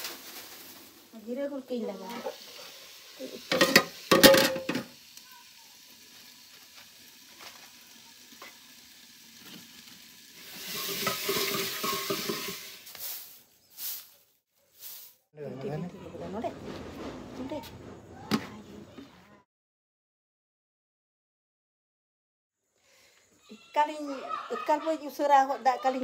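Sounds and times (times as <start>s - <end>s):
frying sizzle: 0.0s - 15.2s
metal spoon scraping a pot: 10.4s - 12.8s.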